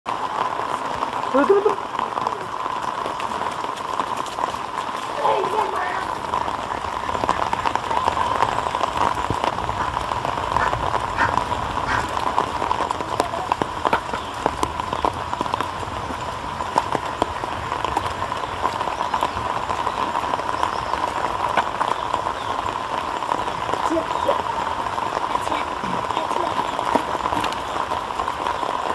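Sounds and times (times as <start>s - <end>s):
rain on wet ground: 0.0s - 28.9s
sharp drips and taps: 0.1s - 28.9s.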